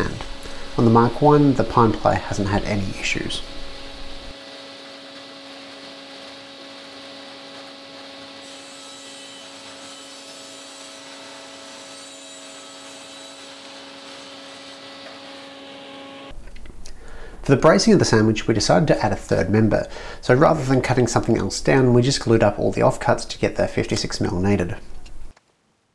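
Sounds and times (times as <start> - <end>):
table saw running: 0.0 - 16.3.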